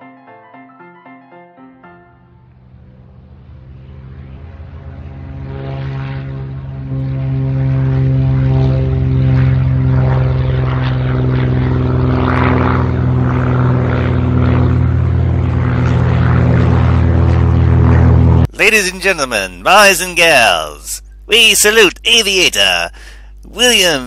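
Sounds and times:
propeller aircraft engine: 0:02.1 - 0:21.3.

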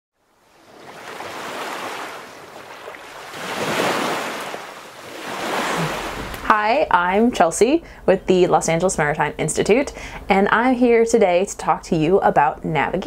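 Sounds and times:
ocean waves washing in: 0:00.2 - 0:06.5.

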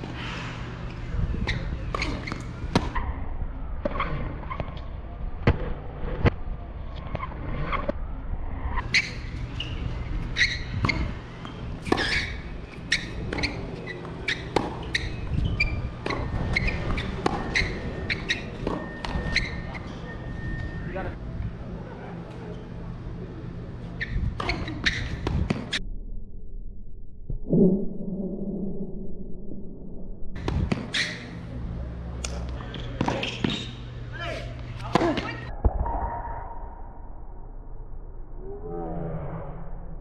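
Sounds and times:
steady low hum: 0:00.0 - 0:40.0
tennis balls struck and bouncing: 0:01.9 - 0:03.0, 0:10.4 - 0:15.2, 0:16.0 - 0:19.9, 0:30.4 - 0:31.0.

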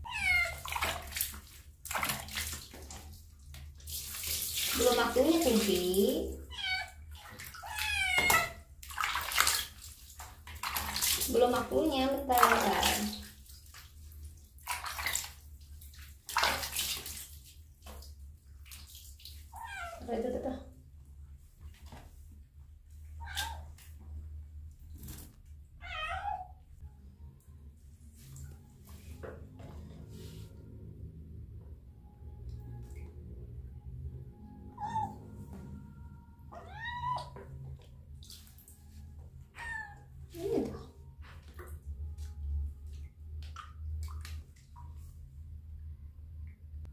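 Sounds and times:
kitten meowing: 0:00.0 - 0:00.6, 0:25.8 - 0:26.5, 0:36.5 - 0:37.4
water splashing and dripping: 0:00.0 - 0:20.6, 0:23.1 - 0:25.7, 0:32.4 - 0:45.4.

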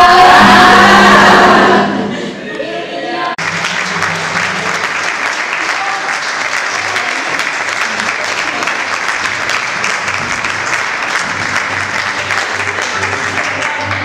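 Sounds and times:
audience applause: 0:03.4 - 0:14.0.

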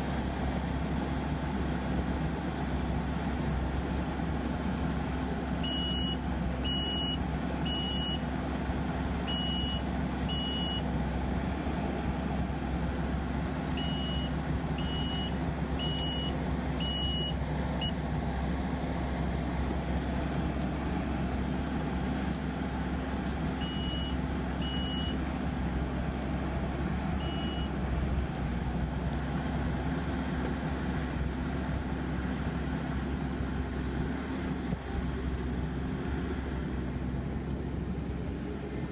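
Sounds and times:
diesel engine drone: 0:00.0 - 0:38.9
backup alarm beeping: 0:05.6 - 0:08.2, 0:09.3 - 0:10.8, 0:13.8 - 0:18.0, 0:23.6 - 0:25.2, 0:27.2 - 0:27.7.

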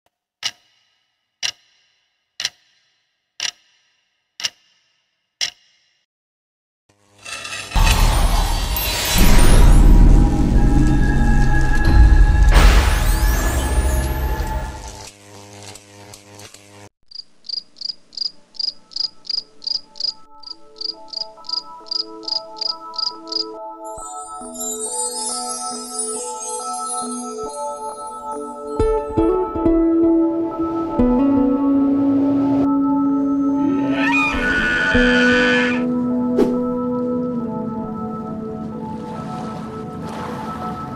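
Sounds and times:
cricket chirping: 0:17.1 - 0:23.6.

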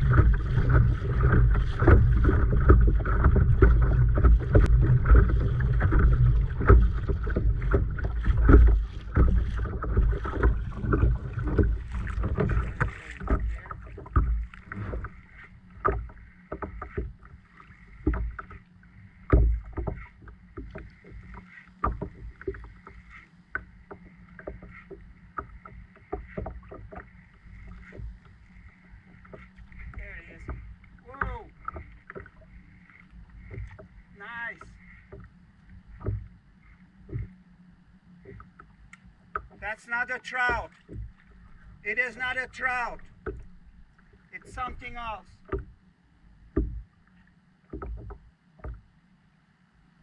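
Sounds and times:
wind buffeting microphone: 0:00.0 - 0:15.2
waves slapping kayak hull: 0:00.0 - 0:50.0.

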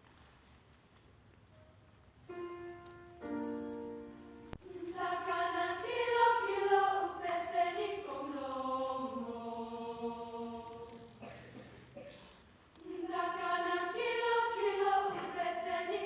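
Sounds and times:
choir singing: 0:03.5 - 0:11.4, 0:12.8 - 0:16.0.

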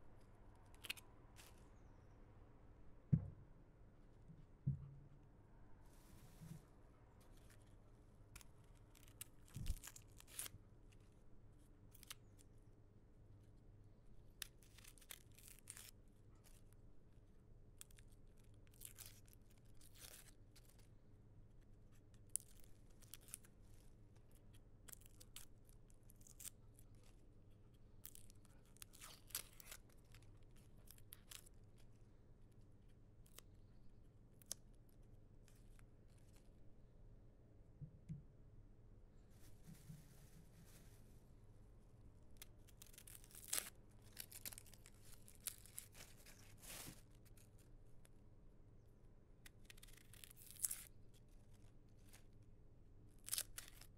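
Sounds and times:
low room tone hum: 0:00.0 - 0:53.9
onion skin crackling and tearing: 0:00.6 - 0:01.6, 0:08.3 - 0:11.1, 0:11.9 - 0:12.4, 0:14.4 - 0:16.8, 0:17.8 - 0:20.9, 0:22.2 - 0:27.2, 0:28.0 - 0:32.0, 0:42.3 - 0:47.6, 0:49.4 - 0:52.3, 0:53.1 - 0:53.9
soft thump: 0:03.1 - 0:03.4, 0:04.6 - 0:05.0.

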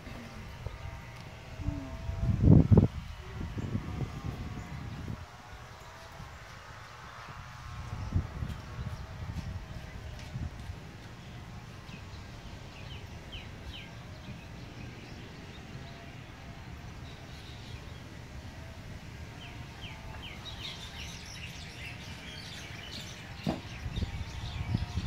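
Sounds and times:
small birds chirping: 0:19.3 - 0:25.0.

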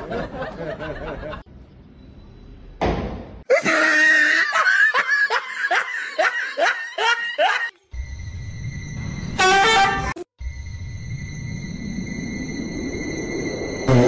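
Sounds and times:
person laughing hard: 0:03.5 - 0:07.7
high-pitched whine: 0:10.4 - 0:14.0.

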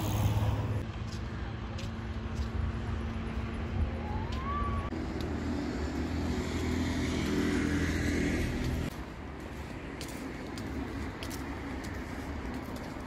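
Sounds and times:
car passing: 0:04.9 - 0:08.9.

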